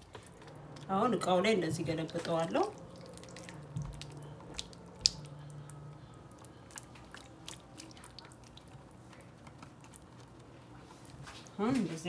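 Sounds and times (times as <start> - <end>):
wet food squelching: 0.0 - 12.0.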